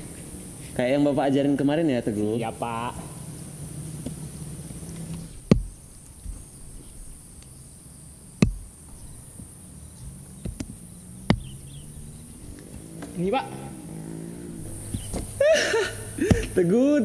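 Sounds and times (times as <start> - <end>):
insects chirring: 0.0 - 17.0
hand tools striking soil: 4.0 - 7.5, 8.3 - 13.2, 14.6 - 16.8.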